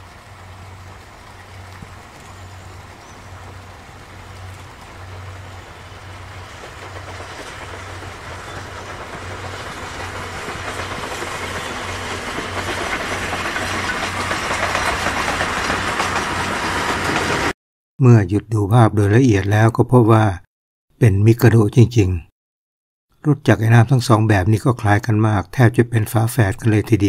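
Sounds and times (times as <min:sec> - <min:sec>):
steam locomotive passing: 0:00.0 - 0:17.6
wheel and rail noise: 0:00.0 - 0:17.6.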